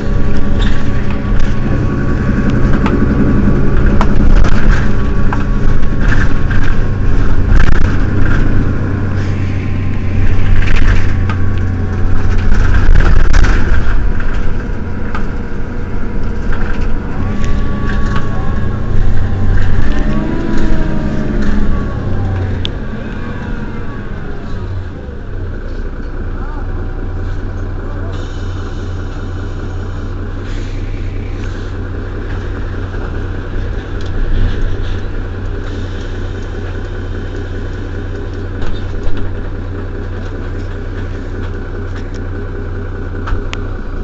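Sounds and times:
bus engine idling: 0.0s - 44.0s.

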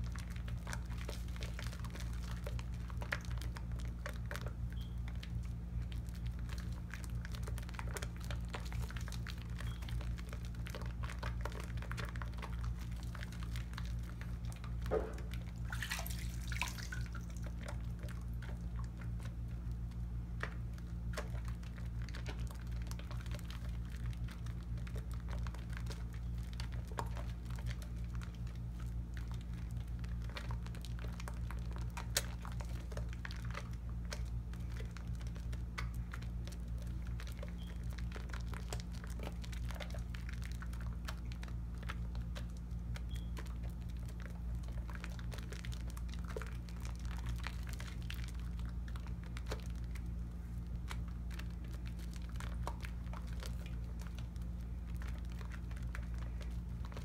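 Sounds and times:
wet crackle of soap lather: 0.0s - 57.0s.

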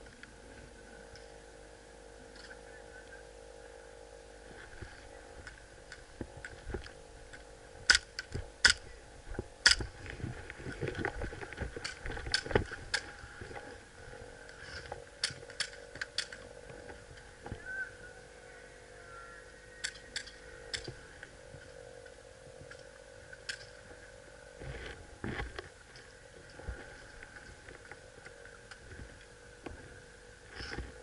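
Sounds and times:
clattering movement noise: 4.4s - 17.7s, 19.8s - 31.0s.

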